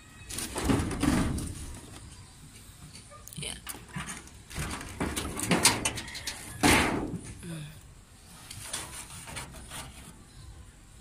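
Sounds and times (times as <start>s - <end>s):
fingertip scraping corrugated metal: 8.2s - 10.4s.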